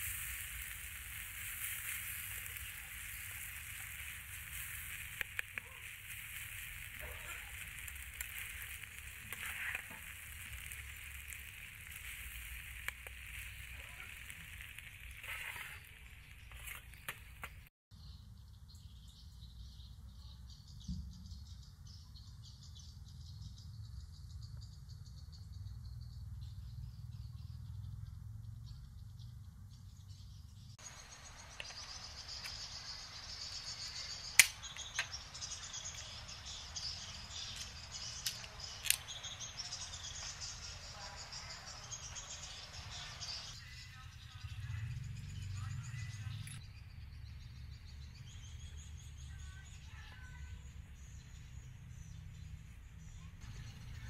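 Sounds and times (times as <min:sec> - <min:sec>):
high insect drone: 0:00.0 - 0:16.6
meat and vegetables sizzling in pan: 0:00.0 - 0:17.7, 0:30.8 - 0:43.6.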